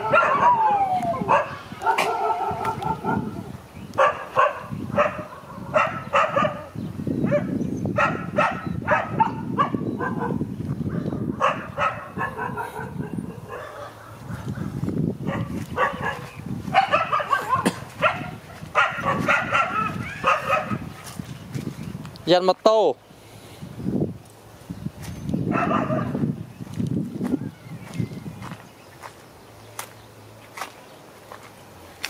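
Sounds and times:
dog barking: 0:00.0 - 0:20.9, 0:25.5 - 0:26.2.

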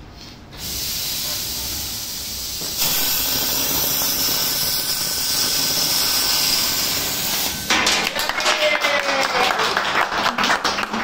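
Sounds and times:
laser cutter gas hissing: 0:00.6 - 0:07.7.

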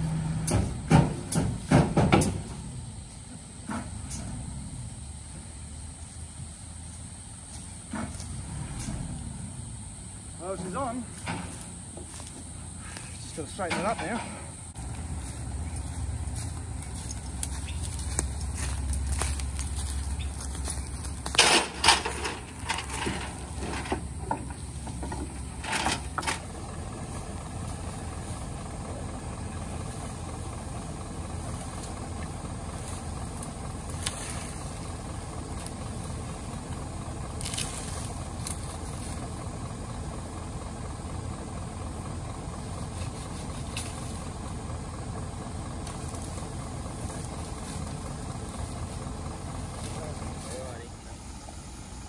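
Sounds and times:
truck engine idling: 0:00.0 - 0:52.0
loud knocks and clanks: 0:00.4 - 0:02.6.

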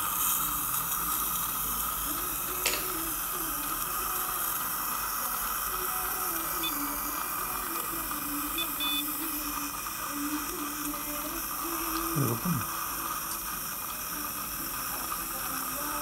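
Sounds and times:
short high beeps: 0:08.5 - 0:09.2.

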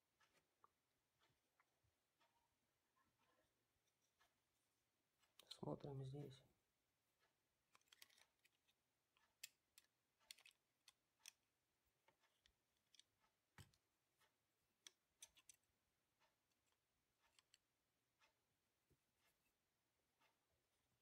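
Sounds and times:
screwdriver clicking and scraping: 0:07.7 - 0:11.4, 0:14.8 - 0:15.7, 0:16.6 - 0:17.6.

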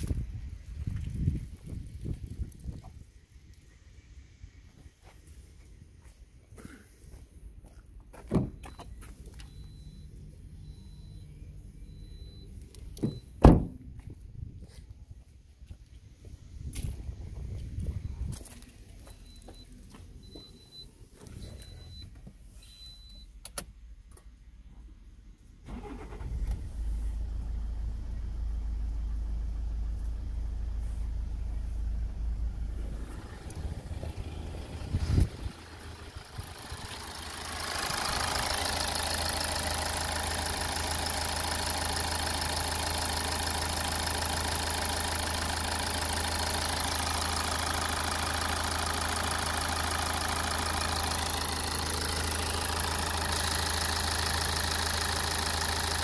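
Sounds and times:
diesel engine starting and idling: 0:08.6 - 0:14.2, 0:25.4 - 0:56.0.

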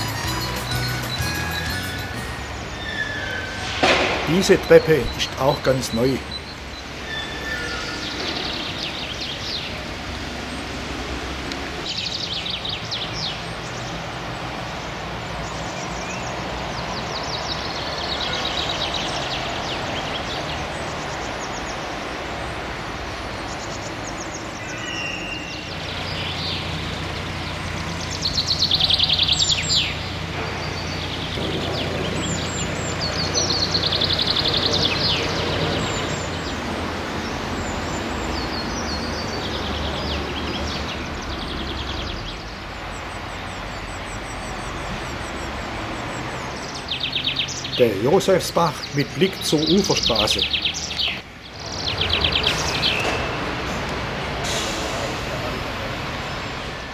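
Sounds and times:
diesel engine running: 0:00.0 - 0:06.4
small birds trilling: 0:00.0 - 0:10.7, 0:11.8 - 0:53.9.

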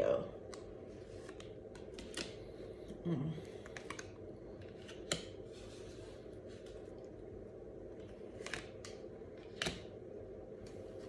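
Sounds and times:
low room hum: 0:00.0 - 0:11.0
cards tapping and flicking: 0:00.5 - 0:02.5.

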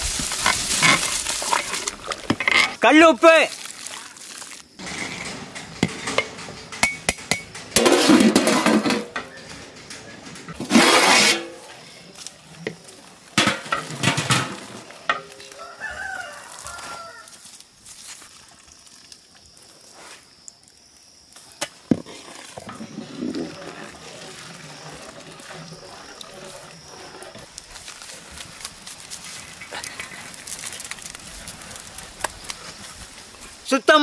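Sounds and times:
ladle scraping metal pot: 0:04.8 - 0:12.8, 0:21.9 - 0:27.5
rooster crowing: 0:15.3 - 0:17.5.

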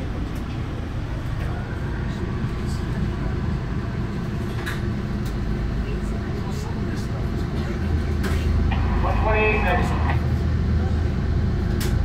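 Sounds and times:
train coach rumbling: 0:00.0 - 0:12.0.

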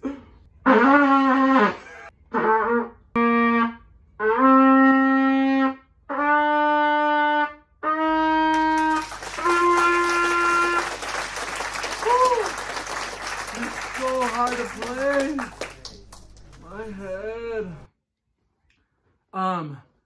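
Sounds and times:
trumpet playing held notes: 0:02.4 - 0:11.7.

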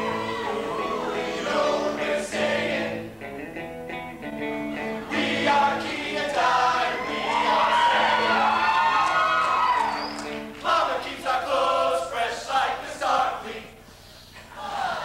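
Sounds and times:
men's choir singing in harmony: 0:00.0 - 0:03.2, 0:04.9 - 0:08.5, 0:10.6 - 0:13.8.

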